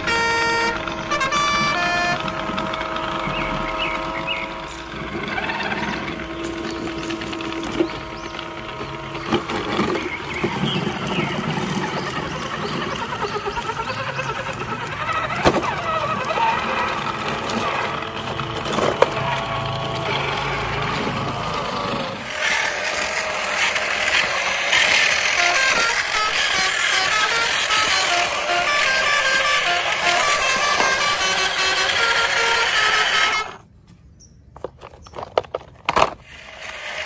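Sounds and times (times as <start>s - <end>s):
toy trucks scraping in sand: 0.0s - 33.7s, 34.6s - 37.0s
music: 25.4s - 33.4s.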